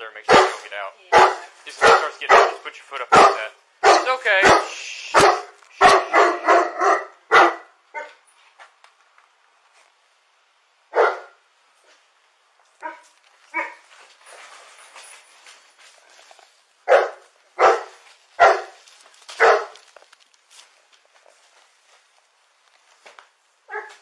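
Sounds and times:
dog barking: 0.3 - 8.2, 10.9 - 11.4, 12.8 - 13.8, 16.8 - 19.8, 23.6 - 24.0.

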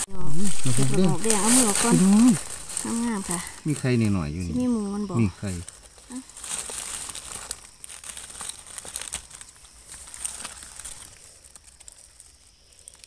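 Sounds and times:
dry leaves rustling: 0.0 - 13.0
small twigs snapping: 5.6 - 13.0.

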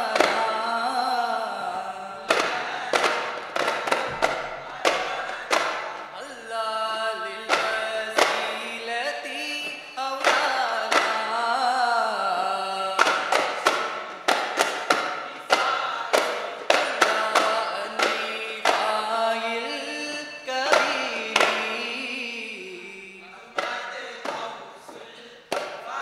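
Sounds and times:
voices singing: 0.0 - 26.0
frame drums struck: 2.2 - 6.2.

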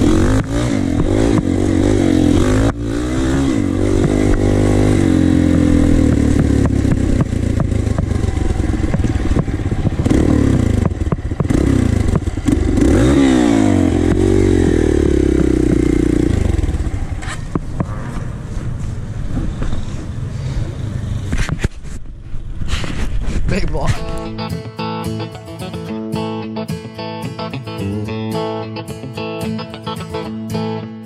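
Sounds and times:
dirt bike engine revving: 0.0 - 18.4.

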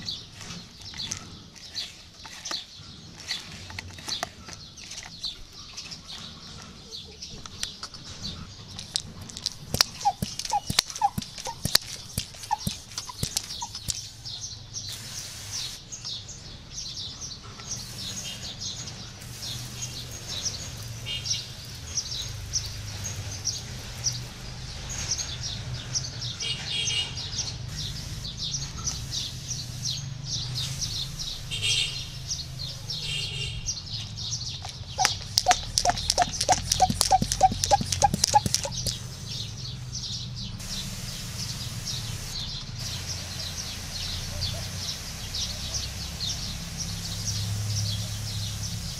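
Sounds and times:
small birds chirping: 0.0 - 48.9
pressure sprayer hissing: 9.4 - 15.8, 17.8 - 24.5, 27.7 - 32.7, 34.6 - 39.2, 40.6 - 48.9.

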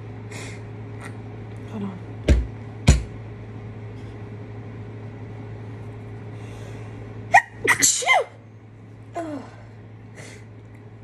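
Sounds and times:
steady low hum: 0.0 - 11.0
woman sneezing: 7.3 - 8.4.

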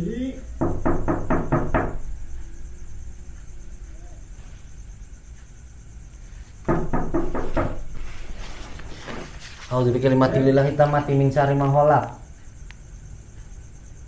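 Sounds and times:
faint steady hum: 0.0 - 14.0
knocking on a door: 0.6 - 2.1, 6.6 - 8.0.

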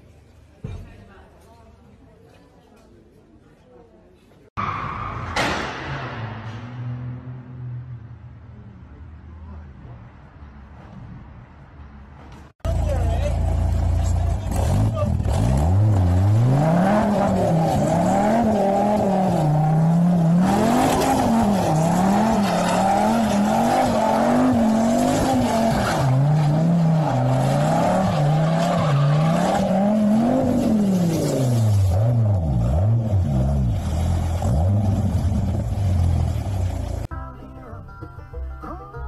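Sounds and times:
car engine revving: 12.7 - 37.1.

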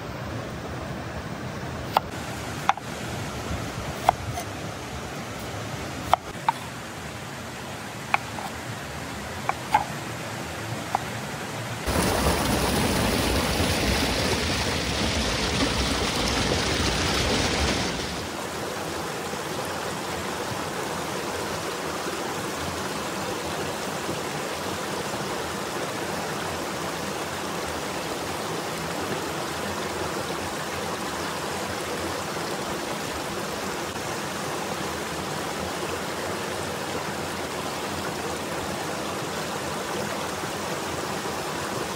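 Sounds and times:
flowing river: 0.0 - 41.9
knife chopping on wooden board: 4.0 - 4.4, 8.2 - 8.5, 9.5 - 9.9.

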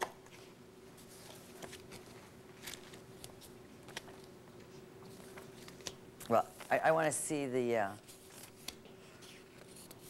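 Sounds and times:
faint steady hum: 0.0 - 10.0
photograph prints rustling: 0.3 - 7.0, 8.0 - 10.0.

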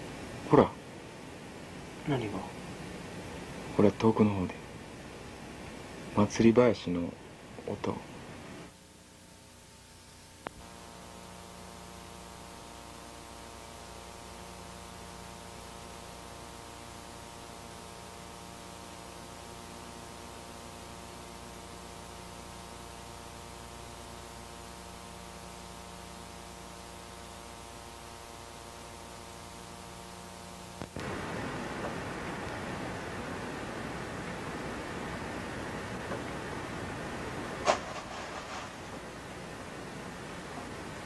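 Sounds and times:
loud noise hiss: 0.0 - 8.7, 28.8 - 41.0
electric hum: 0.0 - 41.0.

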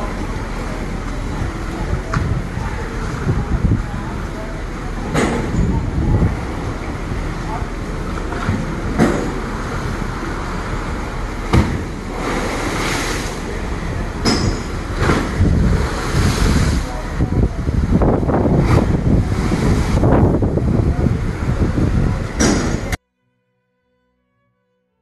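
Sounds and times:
water sloshing and splashing in pool: 0.0 - 17.6.

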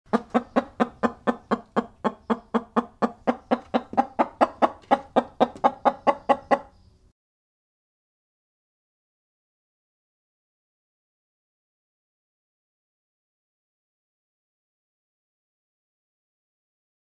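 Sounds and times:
chicken clucking: 0.1 - 6.9.

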